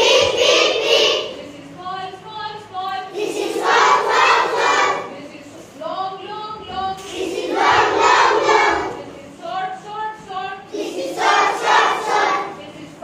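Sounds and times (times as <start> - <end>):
children chanting together: 0.0 - 1.5, 3.1 - 5.2, 6.9 - 9.1, 10.7 - 12.7.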